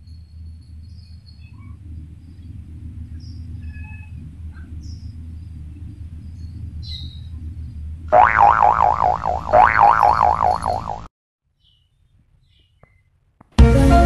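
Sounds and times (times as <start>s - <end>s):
cartoon boing sound effect: 8.2s - 11.1s.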